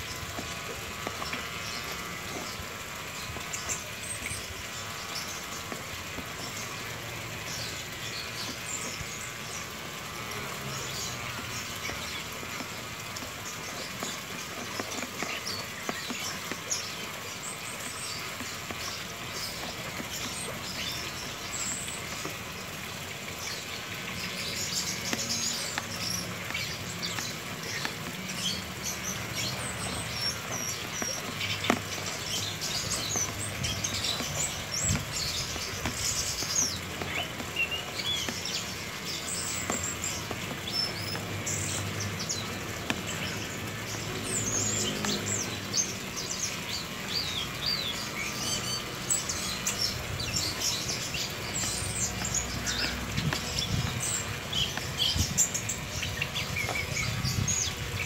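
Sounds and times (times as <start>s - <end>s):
electric pet clipper running: 0.0s - 46.2s
small birds chirping: 0.0s - 58.0s.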